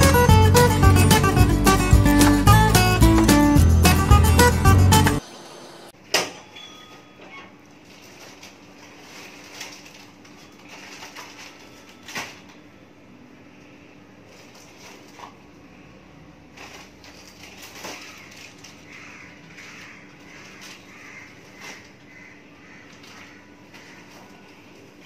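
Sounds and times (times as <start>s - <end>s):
grocery packets rustling and knocking: 7.7s - 12.8s, 14.2s - 15.6s, 16.4s - 25.0s.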